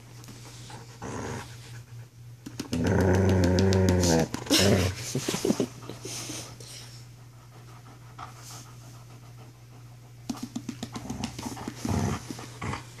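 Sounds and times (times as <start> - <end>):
dog panting hard: 5.4 - 13.0.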